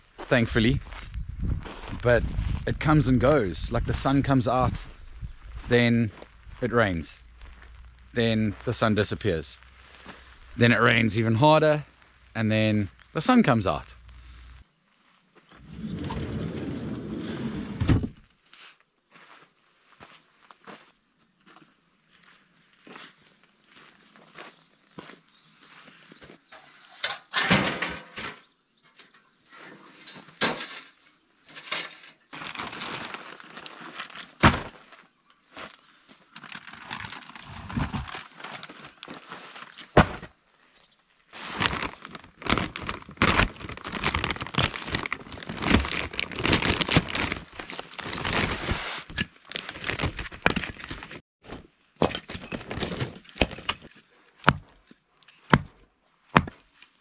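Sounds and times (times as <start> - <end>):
plastic bags rustling: 32.3 - 34.4, 36.3 - 40.0, 41.3 - 51.2.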